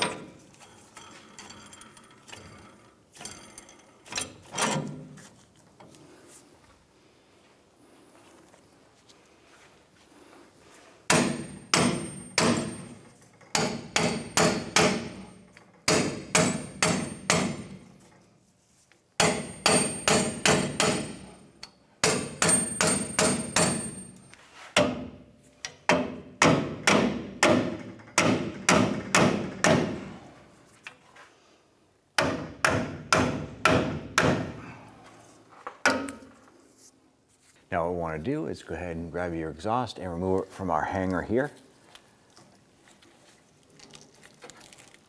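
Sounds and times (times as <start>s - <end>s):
hammer striking metal: 11.1s - 15.3s, 15.9s - 17.8s, 19.2s - 21.3s, 22.0s - 24.2s, 25.9s - 30.0s, 32.2s - 34.6s.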